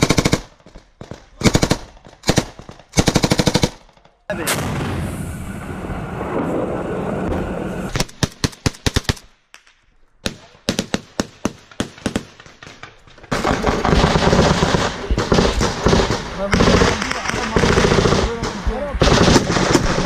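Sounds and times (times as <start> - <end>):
separate gunshots: 0.0 - 5.2, 10.2 - 20.0
automatic gunfire bursts: 13.3 - 20.0.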